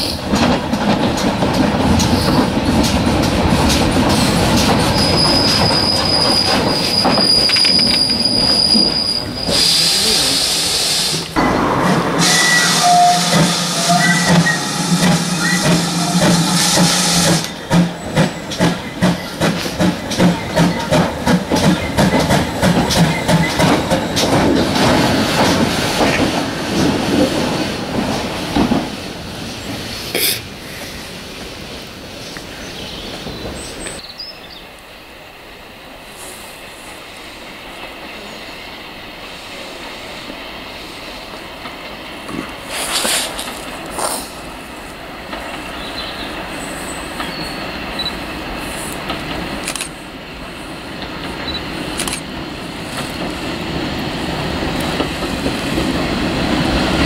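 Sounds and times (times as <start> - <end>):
steam locomotive chuffing: 0.0 - 29.0
steam hissing: 4.1 - 24.1, 42.6 - 44.9.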